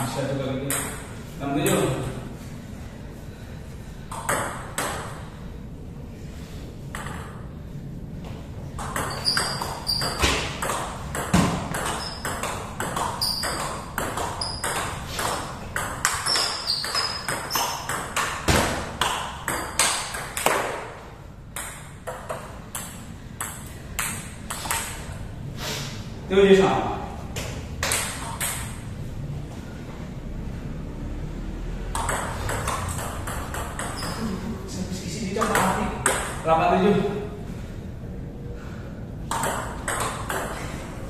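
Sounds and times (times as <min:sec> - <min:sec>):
table tennis ball hits: 0:00.6 - 0:02.1, 0:04.1 - 0:05.3, 0:06.9 - 0:07.5, 0:08.8 - 0:25.2, 0:27.4 - 0:28.8, 0:31.9 - 0:34.3, 0:35.4 - 0:36.4, 0:39.2 - 0:40.8.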